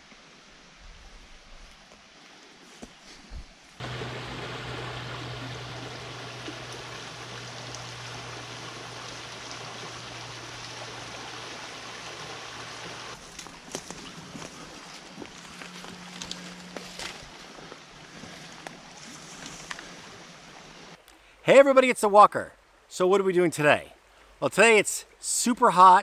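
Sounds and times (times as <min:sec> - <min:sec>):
stream babbling over stones: 0:03.8 - 0:21.0.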